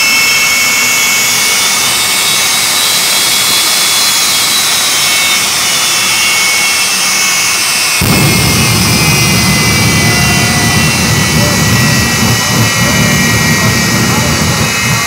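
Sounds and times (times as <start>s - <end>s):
jet engine high whine: 0.0s - 15.0s.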